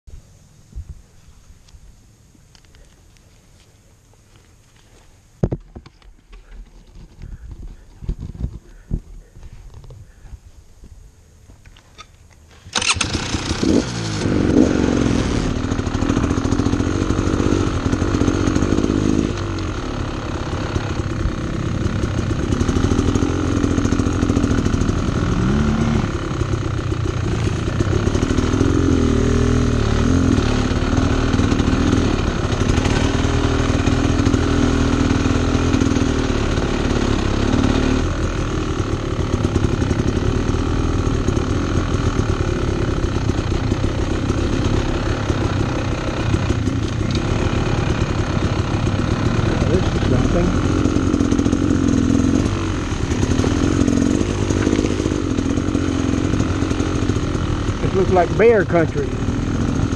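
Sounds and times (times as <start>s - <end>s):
dirt bike engine revving: 12.6s - 59.9s.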